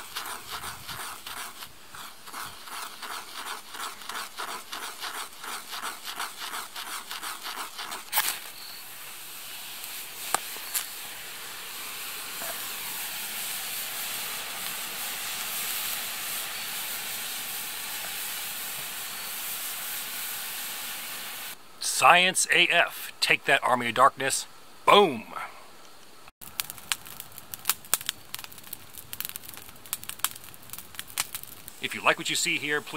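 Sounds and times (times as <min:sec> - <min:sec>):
pestle grinding in a mortar: 0:00.0 - 0:08.2
black powder burning with a hiss: 0:00.0 - 0:23.1, 0:26.4 - 0:32.9
sharp pops: 0:09.8 - 0:11.0, 0:26.0 - 0:31.8.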